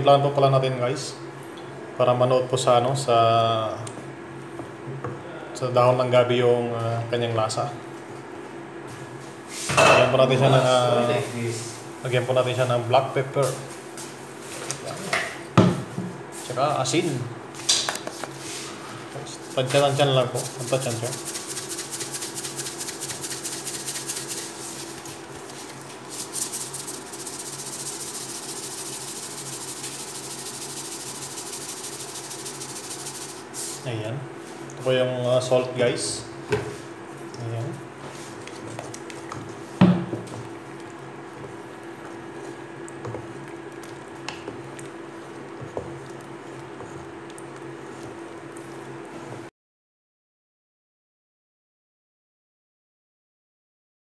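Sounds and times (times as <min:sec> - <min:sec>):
steady low hum: 0:00.0 - 0:49.5
pot boiling with bubbles crackling: 0:19.2 - 0:33.9, 0:37.1 - 0:49.5
spatula stirring thick liquid: 0:19.5 - 0:33.6, 0:38.0 - 0:49.5.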